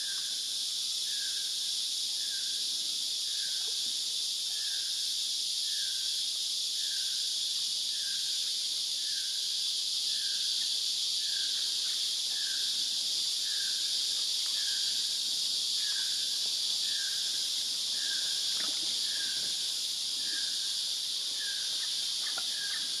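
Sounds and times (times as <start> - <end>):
high-pitched insect chorus: 0.0 - 23.0.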